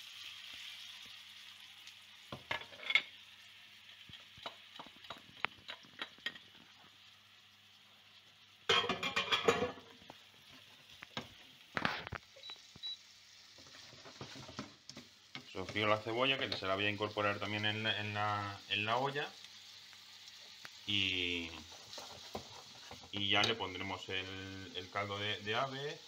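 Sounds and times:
onion sizzling in oil: 0.0 - 26.0
spatula tapping a pan: 4.1 - 6.4.

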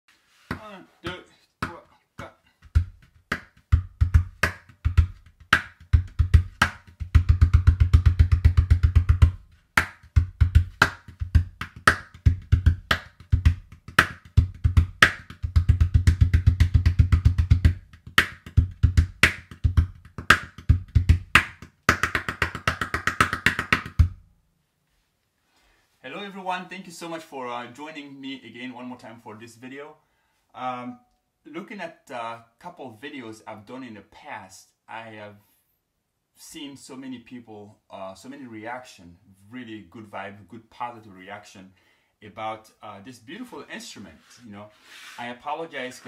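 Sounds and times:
hand-played gourd drum: 2.2 - 24.2.

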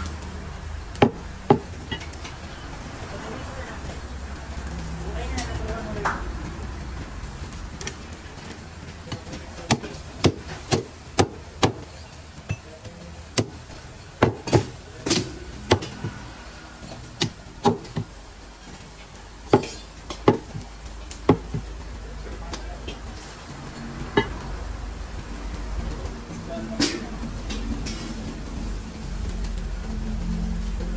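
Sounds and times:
cleaver chopping meat on wood: 1.0 - 1.8, 9.1 - 11.9, 13.3 - 16.2, 17.2 - 18.1, 19.5 - 21.7.

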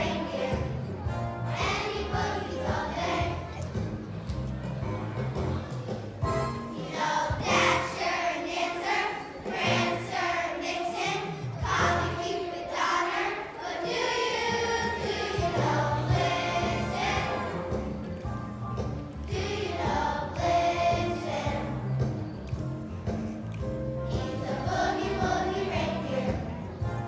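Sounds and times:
children's choir singing: 0.0 - 4.2, 5.8 - 23.2, 24.0 - 27.0
instrumental accompaniment with bass: 0.0 - 6.8, 14.7 - 27.0.

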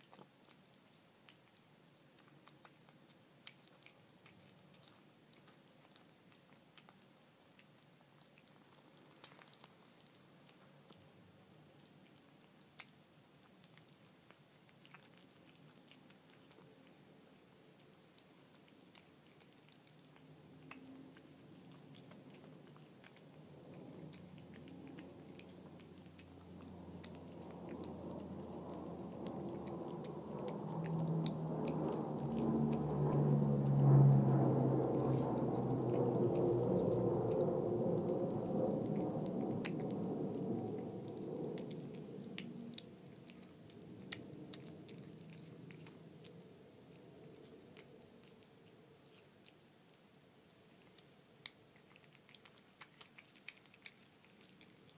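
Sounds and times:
cat chewing and lapping: 0.0 - 54.9
low droning sound: 23.4 - 46.4.

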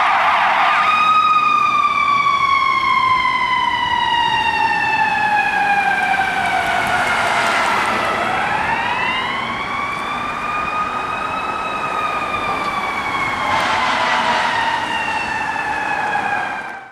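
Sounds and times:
fire engine siren wailing: 0.0 - 16.9
rush of noise: 13.0 - 16.8.

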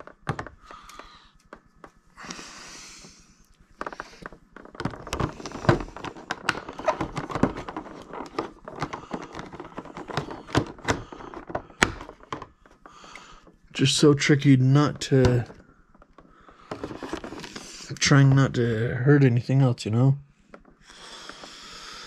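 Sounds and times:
clicks and rustles of packaging: 3.0 - 18.7, 20.4 - 22.0.

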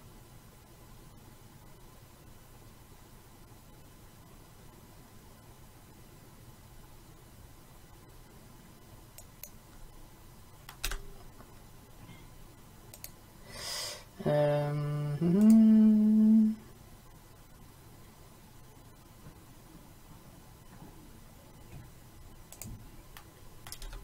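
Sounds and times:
faint mouse clicks: 12.9 - 13.2, 22.5 - 24.0
man breathing out: 13.4 - 14.1.

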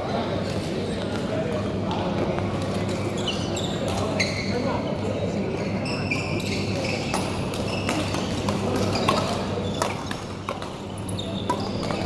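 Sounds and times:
low hum of a hall: 0.0 - 12.0
shoes squeaking on floor: 3.0 - 12.0
rackets hitting shuttlecock: 7.0 - 12.0.

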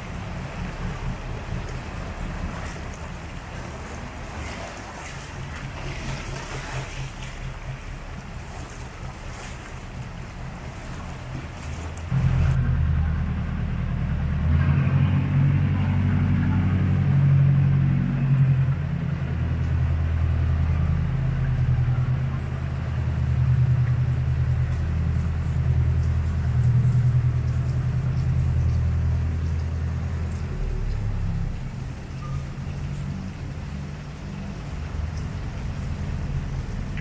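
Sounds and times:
boat motor droning: 0.0 - 37.0
moving river water hiss: 0.0 - 37.0.

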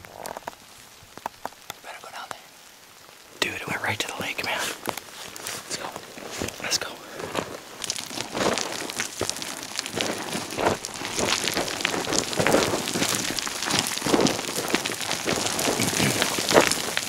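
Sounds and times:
footsteps crunching on loose gravel: 4.4 - 17.0.

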